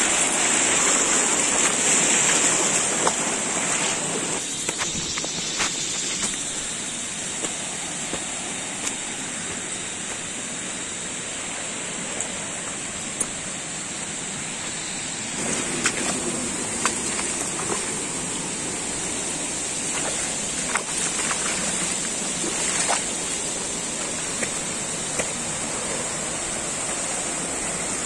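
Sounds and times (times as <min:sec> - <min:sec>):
forest stream rushing: 0:00.0 - 0:28.0
high hiss: 0:00.0 - 0:28.0
footsteps on dirt and stones: 0:04.6 - 0:10.2, 0:15.4 - 0:18.0.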